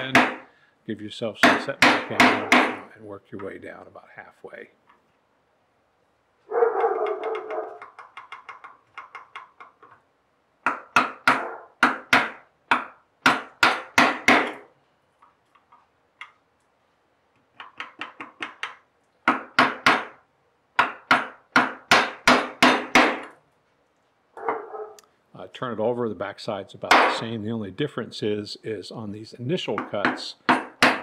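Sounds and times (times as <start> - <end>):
mallet striking chisel: 0.0 - 0.4, 1.4 - 2.9, 10.6 - 14.7, 17.6 - 20.2, 20.8 - 23.3, 26.9 - 27.2, 29.8 - 31.0.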